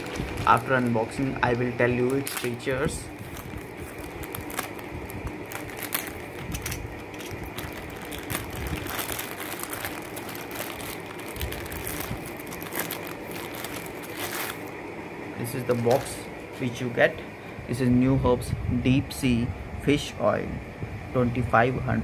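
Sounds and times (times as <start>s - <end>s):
plastic crinkling and rustling: 0.0s - 14.8s, 15.6s - 16.2s.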